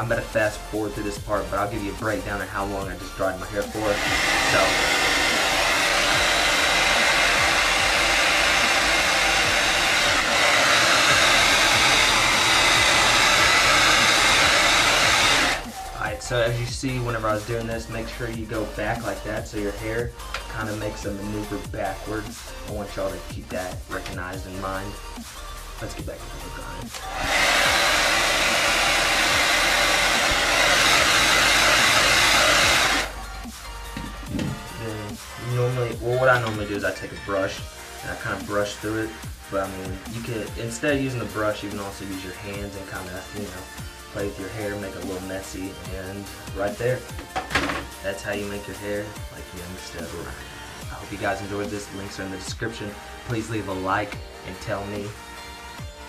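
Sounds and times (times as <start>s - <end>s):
hair dryer running: 3.0s - 17.2s, 26.4s - 54.3s.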